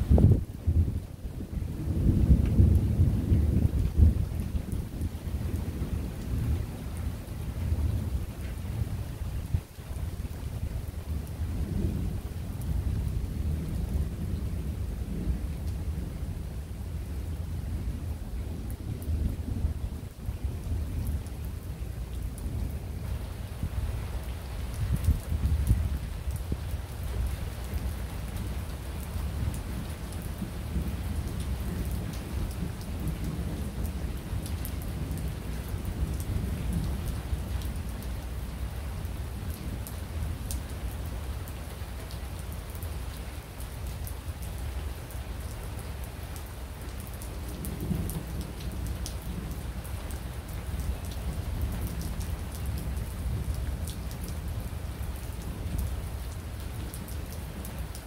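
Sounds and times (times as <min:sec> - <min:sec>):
rolling thunder rumble: 0:00.0 - 0:06.7
rain falling: 0:00.0 - 0:58.0.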